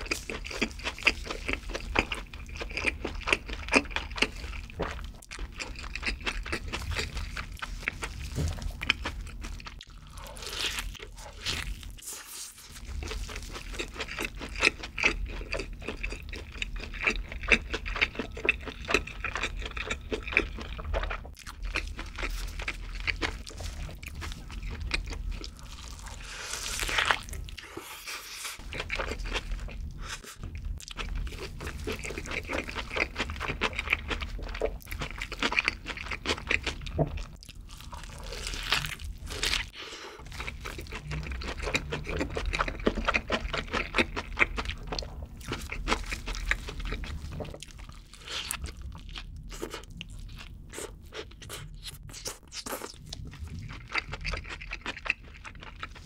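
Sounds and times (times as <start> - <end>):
chewing burger with lips closed: 0.0 - 56.0.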